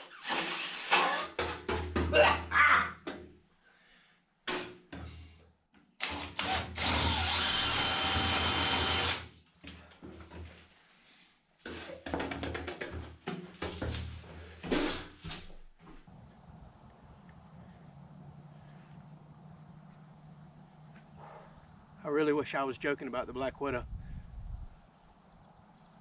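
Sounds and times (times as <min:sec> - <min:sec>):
cordless drill running: 0:06.0 - 0:09.3.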